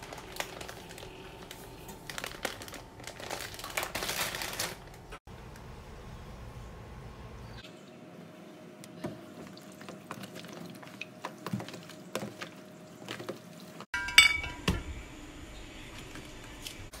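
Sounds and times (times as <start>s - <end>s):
ringing clink of kitchenware: 14.0s - 14.8s.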